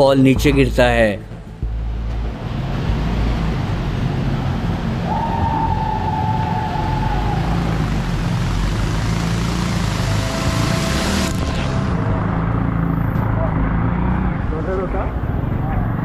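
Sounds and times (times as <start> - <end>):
road and wind noise: 0.0 - 16.0
motorcycle engine running: 6.6 - 16.0
steady high tone: 9.6 - 13.6.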